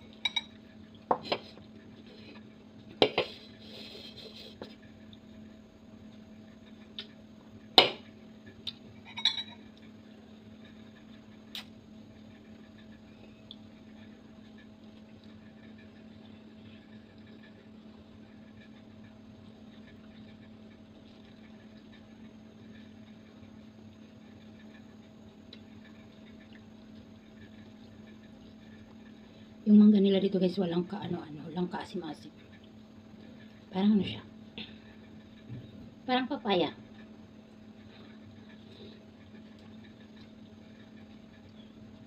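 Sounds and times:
faint steady hum: 0.0 - 42.0
metal spoon clinking ceramic bowl: 9.1 - 9.6.

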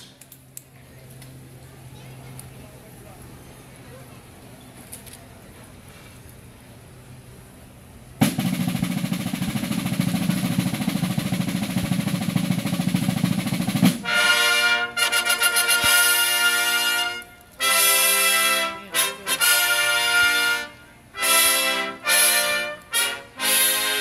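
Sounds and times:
field drum roll: 8.1 - 24.0
brass trumpet fanfare: 13.8 - 24.0.

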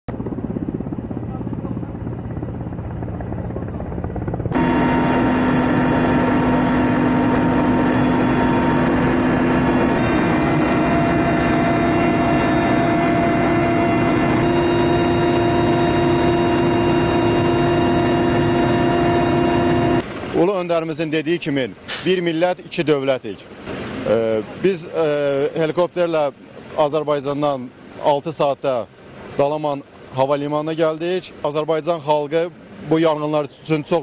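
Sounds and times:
helicopter flying overhead: 0.1 - 21.8, 22.6 - 34.0
turbine whine and rotor noise: 0.1 - 22.8.

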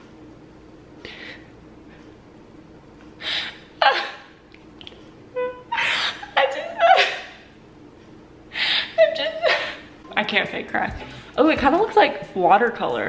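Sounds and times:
woman crying and sobbing: 3.8 - 4.3, 5.4 - 7.6, 8.5 - 10.0.

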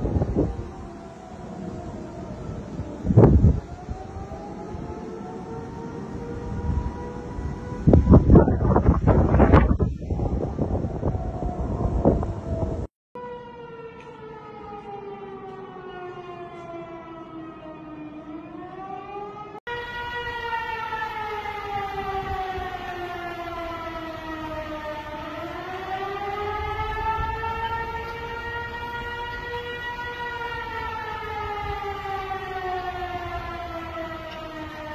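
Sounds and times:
wind buffeting microphone: 0.0 - 12.9, 20.0 - 34.9
warning siren rising and falling: 0.0 - 34.9.

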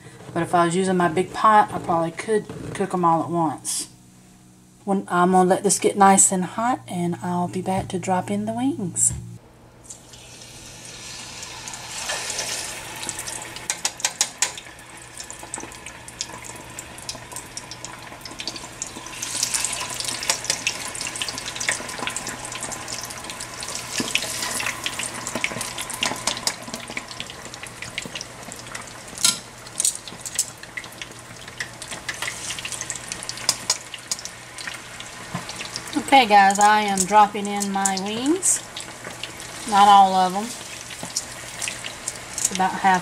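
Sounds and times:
oil sizzling and crackling: 9.8 - 43.0.

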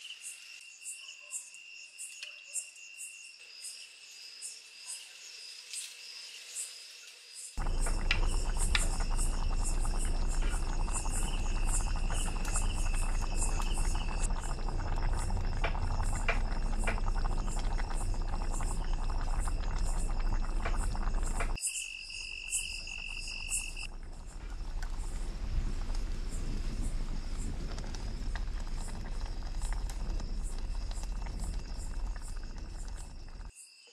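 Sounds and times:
crickets chirping: 0.0 - 33.9
pot boiling and crackling on fire: 7.6 - 21.6, 22.4 - 33.5.

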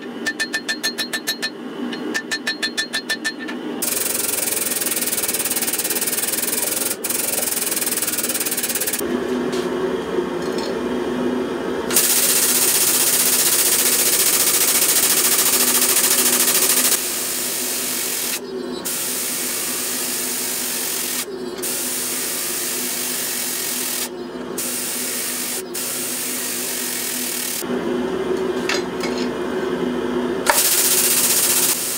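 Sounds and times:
hydraulic press hiss and hum: 3.8 - 9.0, 11.9 - 27.7, 30.4 - 31.9.

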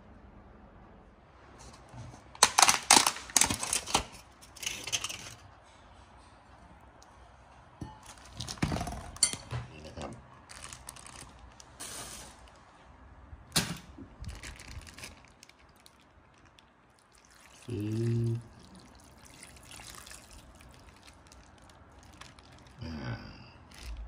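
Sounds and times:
takeaway bowl clicks and rustles: 1.8 - 5.5
broth pouring: 15.1 - 22.8.

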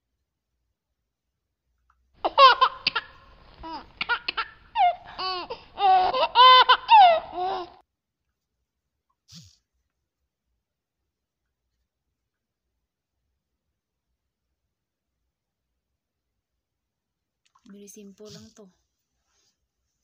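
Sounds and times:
high-pitched giggling: 2.2 - 7.8.

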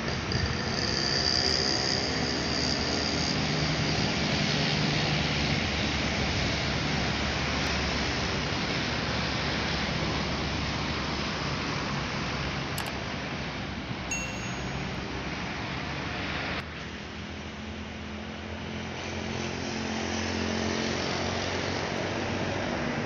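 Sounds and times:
bus passing: 0.0 - 23.0
road noise: 0.0 - 23.0
thin high whine: 14.1 - 15.6.

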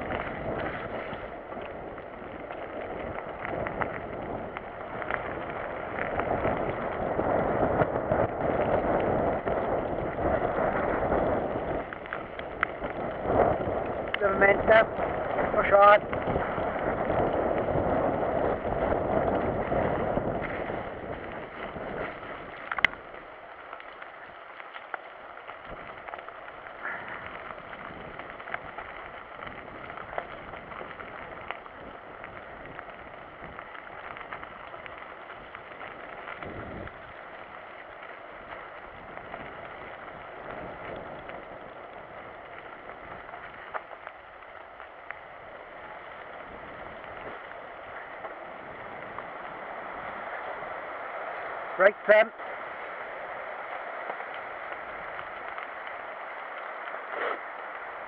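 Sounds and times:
bike clicks and rattles: 0.0 - 14.2, 14.9 - 49.6
bike tyre and wind noise: 0.0 - 58.0.

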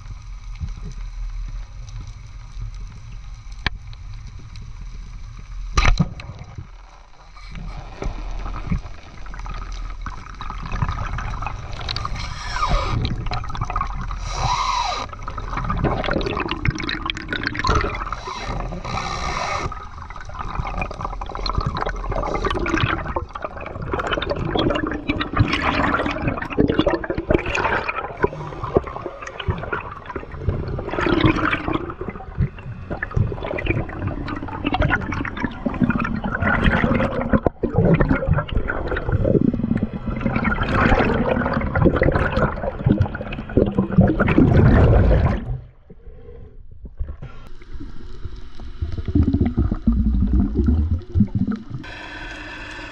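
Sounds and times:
sea water sloshing and gurgling: 0.0 - 52.9.

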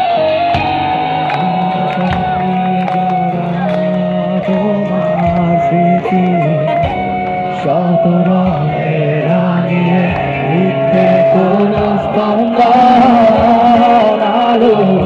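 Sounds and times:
drums: 0.0 - 15.0
person singing: 0.0 - 15.0.

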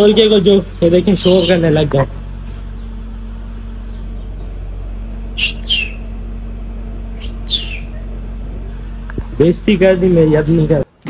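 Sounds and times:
steady low hum: 0.0 - 11.0
budgerigars chirping: 0.5 - 1.9, 3.8 - 4.6, 5.3 - 6.1, 7.1 - 8.2.

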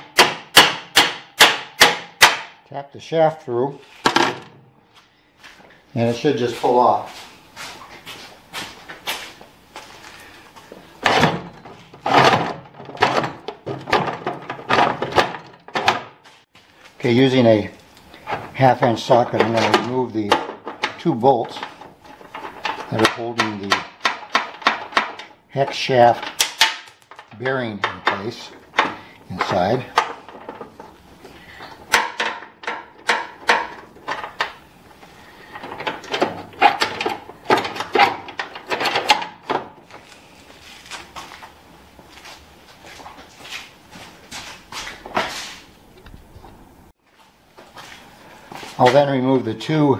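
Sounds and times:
metal wheel scraping and knocking: 10.7 - 16.2, 17.1 - 40.2.

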